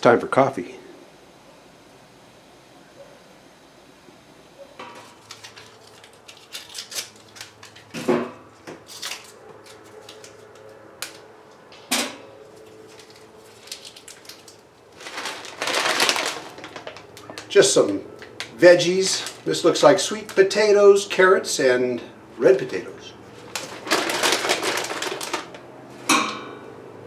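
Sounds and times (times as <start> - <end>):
loud metallic clanks: 26.1 - 26.7.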